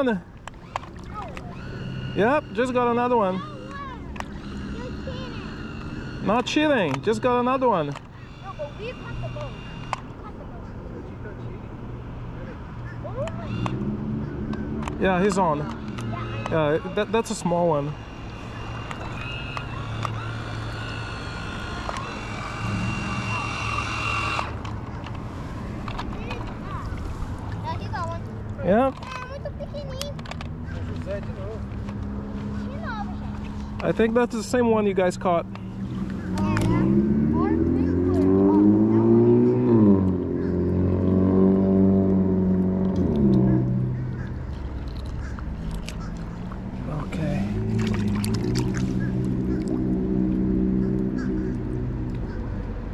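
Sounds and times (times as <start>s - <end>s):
small electric motors whining: 0.0s - 10.4s, 13.1s - 40.2s
low hum: 0.0s - 10.5s, 11.6s - 28.6s, 30.2s - 52.9s.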